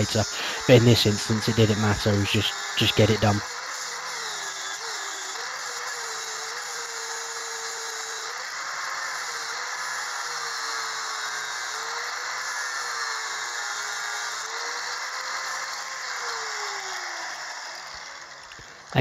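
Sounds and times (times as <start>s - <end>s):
angle grinder grinding metal: 0.0s - 19.0s.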